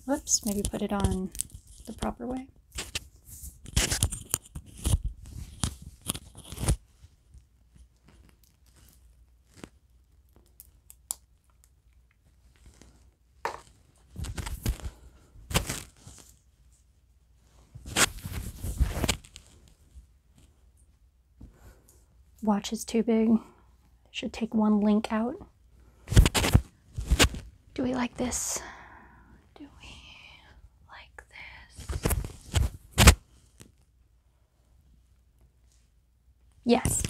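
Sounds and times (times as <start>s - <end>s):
handling noise on microphone: 17.5s - 20.6s, 26.1s - 27.6s.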